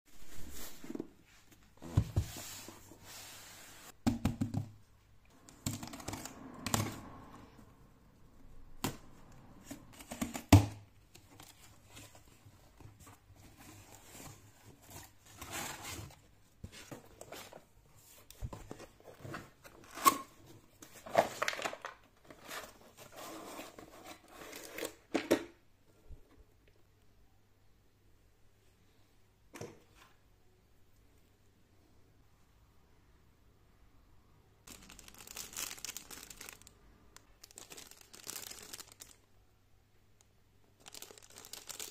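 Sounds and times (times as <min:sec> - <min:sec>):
plastic wrapping crinkling: 0:34.7 - 0:39.3, 0:40.8 - 0:41.9.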